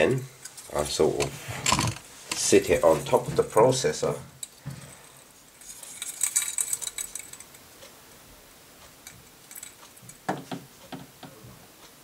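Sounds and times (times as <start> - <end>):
metal heatsink clicking and rattling: 0.0 - 2.5, 3.4 - 4.6, 5.5 - 8.0, 8.9 - 11.4.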